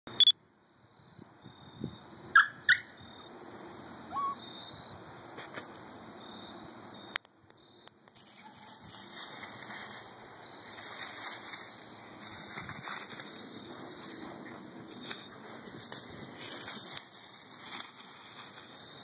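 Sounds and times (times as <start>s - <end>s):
high insect drone: 0.1s - 19.0s
dog yelping: 4.1s - 4.4s.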